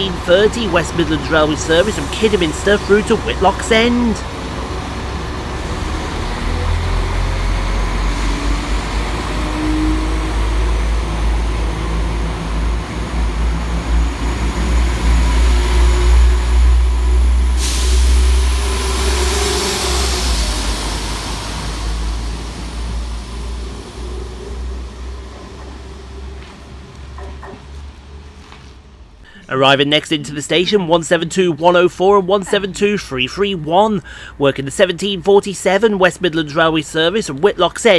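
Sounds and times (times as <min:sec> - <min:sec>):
train diesel engines rumbling: 0:00.0 - 0:37.9
loud hiss: 0:00.5 - 0:04.2, 0:17.2 - 0:24.4.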